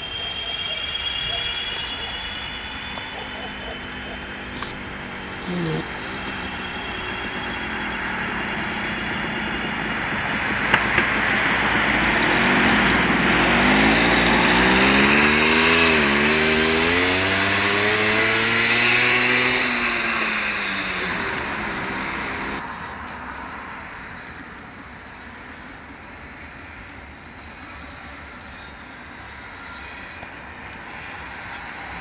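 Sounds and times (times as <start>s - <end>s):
tram wheels rumbling on rails: 0.0s - 15.0s
tram motor whine: 0.0s - 32.0s
sharp clicks: 4.5s - 4.9s.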